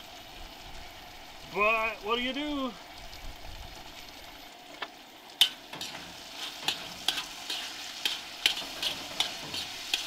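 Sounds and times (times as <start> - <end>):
chicken sizzling in a wok: 0.0 - 2.8, 3.6 - 10.0
utensil scraping a wok: 5.4 - 10.0.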